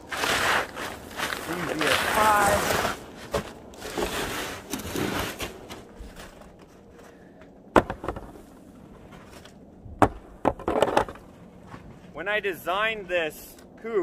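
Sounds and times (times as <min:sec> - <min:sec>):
shovel scraping snow: 0:00.0 - 0:06.3.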